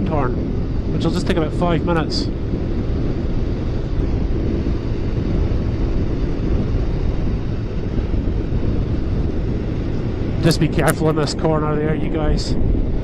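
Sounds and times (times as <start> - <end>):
motorcycle engine running: 0.0 - 13.0
wind buffeting microphone: 0.0 - 13.0.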